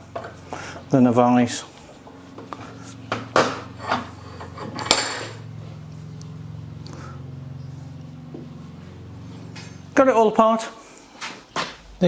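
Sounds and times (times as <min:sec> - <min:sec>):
steady low hum: 0:00.0 - 0:12.0
metal clinks and clanks from vise: 0:03.7 - 0:05.4.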